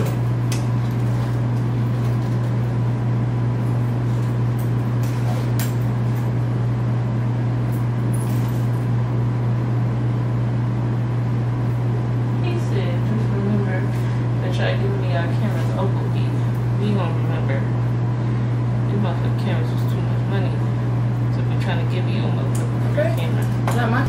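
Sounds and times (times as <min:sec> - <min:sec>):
air conditioner humming: 0:00.0 - 0:24.0.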